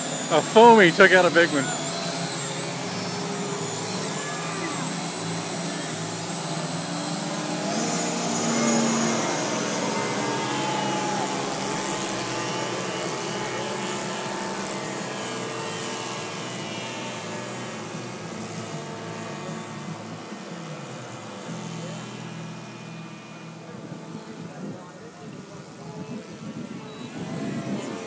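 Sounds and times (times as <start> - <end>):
model aeroplane motors whining: 0.0 - 28.0.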